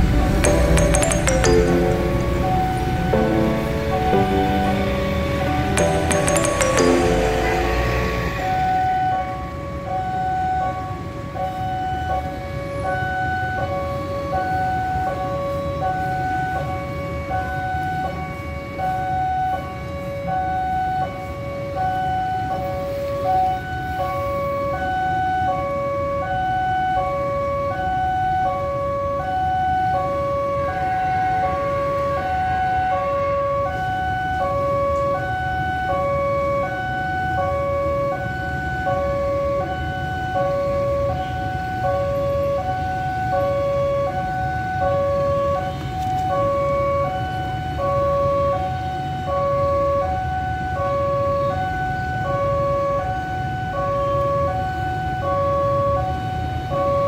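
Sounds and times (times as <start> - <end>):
level crossing alarm two-tone: 0.0 - 10.8.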